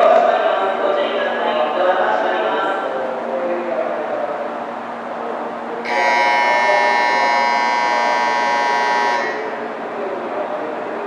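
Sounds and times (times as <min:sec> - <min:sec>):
departure buzzer tone: 0:05.8 - 0:09.6.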